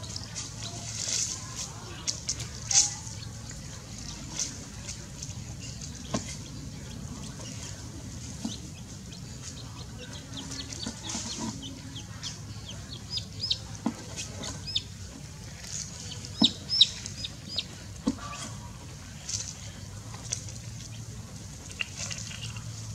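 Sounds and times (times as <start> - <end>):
chick peeping in distress: 6.4 - 15.0, 16.0 - 18.8.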